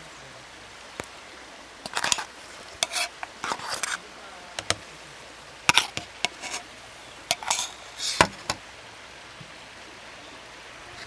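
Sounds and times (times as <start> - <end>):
faint steady hiss: 0.0 - 11.0
cookware and utensils clattering: 1.9 - 4.0, 5.7 - 6.6, 7.3 - 8.6.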